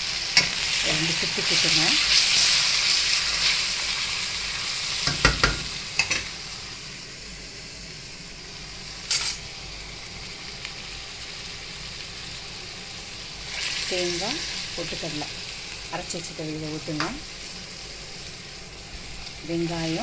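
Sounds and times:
vegetables sizzling in hot oil: 0.0s - 20.0s
spatula knocking against pan: 5.1s - 6.2s.

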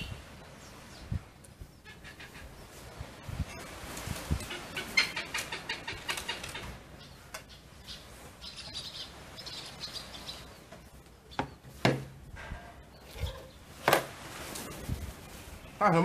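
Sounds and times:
hornbills cackling: 1.8s - 2.6s, 4.4s - 7.1s
sharp knocks: 11.4s - 12.2s.

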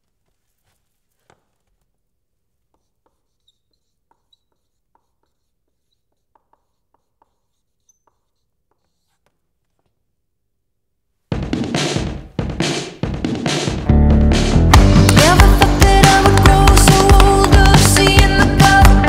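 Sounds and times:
marker writing on a board: 2.6s - 9.8s
marker squeaks: 2.6s - 10.0s.

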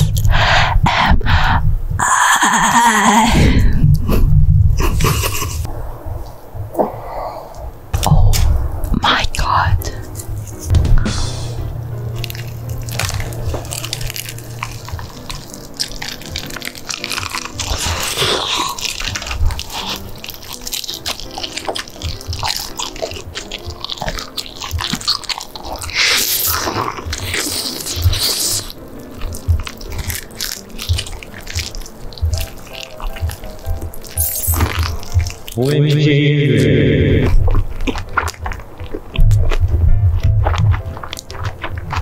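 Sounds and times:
quiet background music: 0.0s - 42.0s
crunching and chewing fried chicken: 9.3s - 10.8s, 11.4s - 35.8s, 36.6s - 42.0s.

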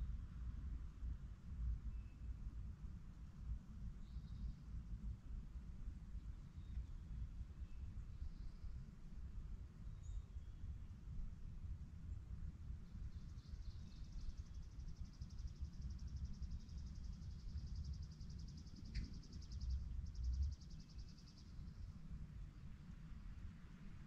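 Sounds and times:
steady low rumble: 10.6s - 24.0s.

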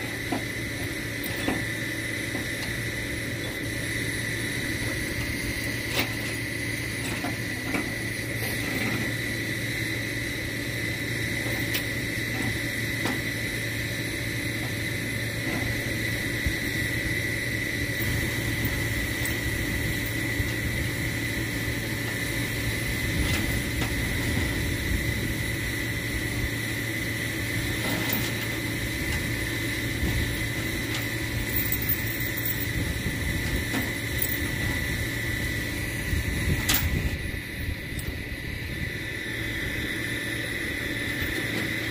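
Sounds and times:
truck engine idling: 0.0s - 41.9s
chains clinking: 30.5s - 34.8s.

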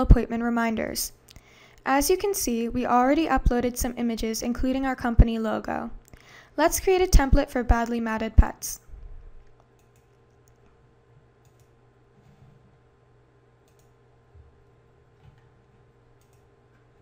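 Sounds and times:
low steady hum: 0.0s - 17.0s
computer mouse clicks: 9.5s - 10.7s, 11.4s - 11.7s, 13.6s - 14.0s, 16.2s - 16.5s.

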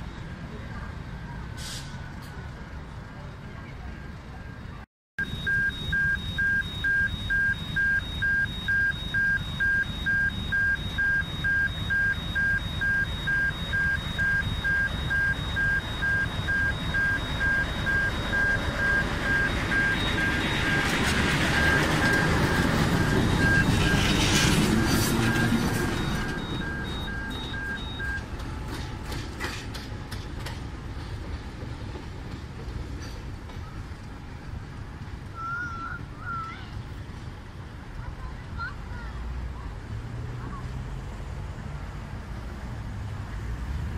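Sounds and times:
level crossing warning alarm: 4.6s - 28.7s
diesel locomotive passing: 9.5s - 43.9s
train wheels clicking over rails: 28.1s - 35.2s.

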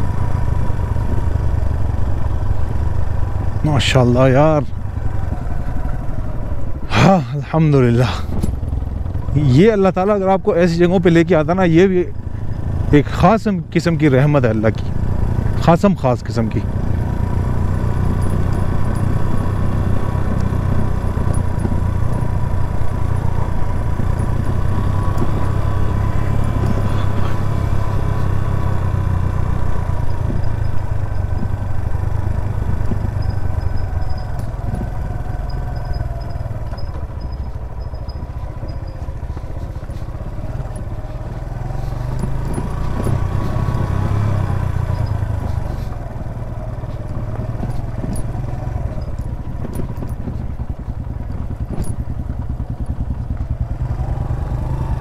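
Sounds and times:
motorcycle engine running: 0.0s - 55.0s.

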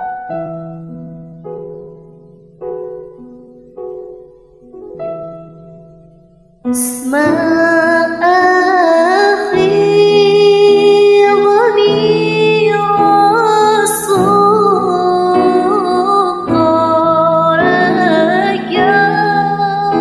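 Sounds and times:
soft instrumental backing track: 0.0s - 20.0s
woman singing: 6.7s - 20.0s.

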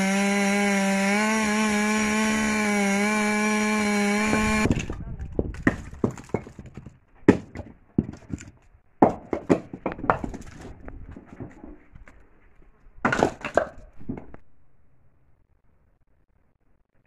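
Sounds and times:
logs landing on log pile: 4.3s - 11.8s, 13.0s - 14.4s.

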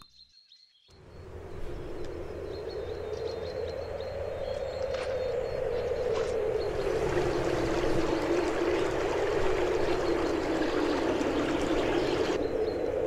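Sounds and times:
river running over stones: 6.6s - 12.4s.

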